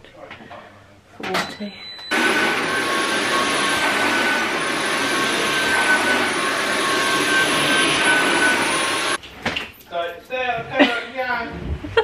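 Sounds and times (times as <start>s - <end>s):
vacuum cleaner on carpet: 2.1s - 9.2s.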